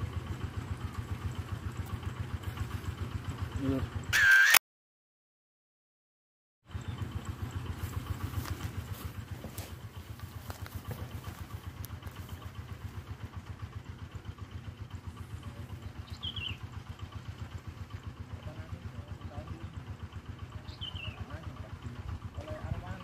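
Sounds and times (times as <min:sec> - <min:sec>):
small engine idling: 0:00.0 - 0:04.6, 0:06.6 - 0:23.0.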